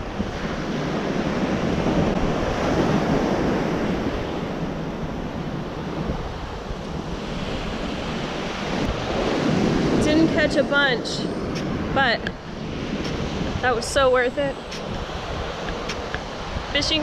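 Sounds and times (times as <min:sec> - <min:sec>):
ocean surf breaking: 0:00.0 - 0:17.0
wind buffeting microphone: 0:00.0 - 0:17.0.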